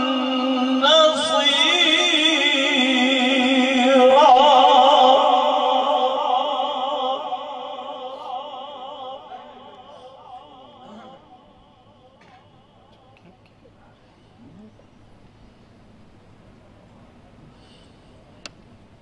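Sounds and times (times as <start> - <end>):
man reciting melodically: 0.0 - 13.2.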